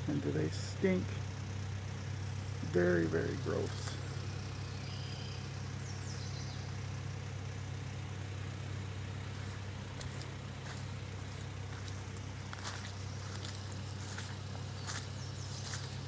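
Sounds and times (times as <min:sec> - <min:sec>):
engine humming steadily: 0:00.0 - 0:16.0
high falling chirp: 0:03.4 - 0:06.8.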